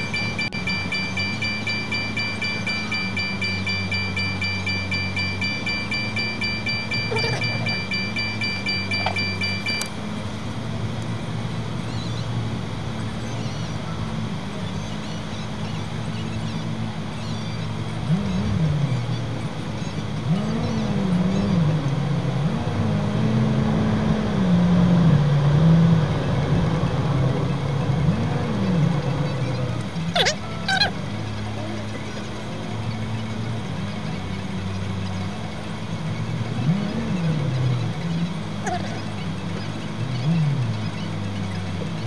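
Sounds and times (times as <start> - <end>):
high steady tone: 0.0 - 9.9
engine and road hum: 0.0 - 42.0.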